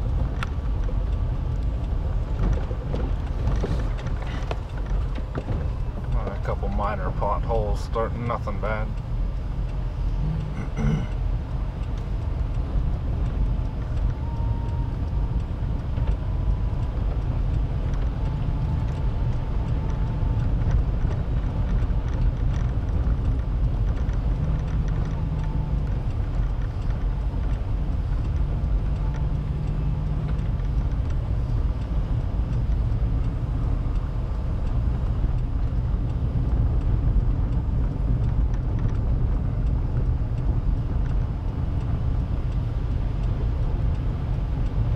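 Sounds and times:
car rumbling on gravel road: 0:00.0 - 0:44.9.

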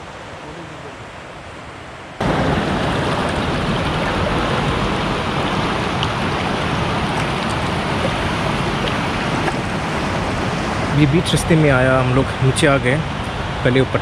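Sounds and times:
rapids rushing over boulders: 0:00.0 - 0:14.0.

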